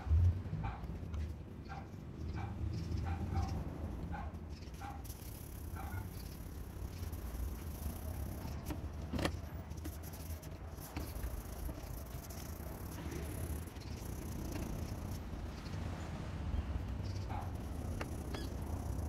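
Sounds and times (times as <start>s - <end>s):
sandpaper scratching on handle: 9.6s - 15.2s.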